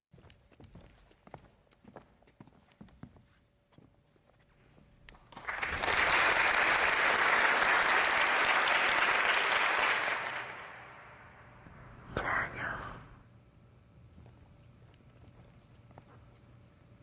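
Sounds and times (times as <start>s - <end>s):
audience applauding: 5.3s - 11.5s.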